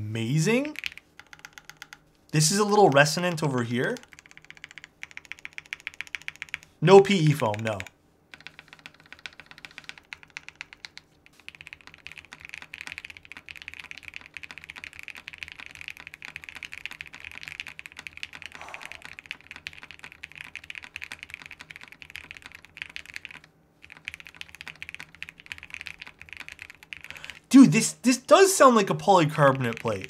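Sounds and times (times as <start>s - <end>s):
mechanical keyboard typing: 0.5s - 27.9s, 28.6s - 30.0s.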